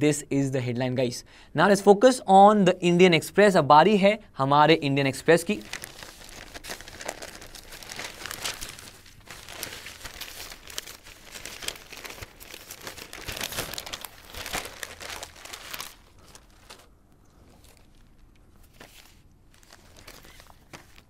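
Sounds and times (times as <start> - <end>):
paper rustling and crinkling: 5.5 - 21.0.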